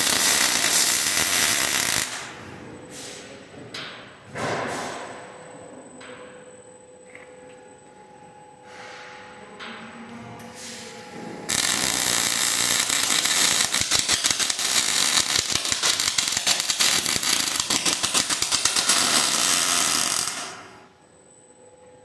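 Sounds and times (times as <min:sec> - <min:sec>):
welding arc crackling: 0:00.0 - 0:02.3, 0:11.5 - 0:20.8.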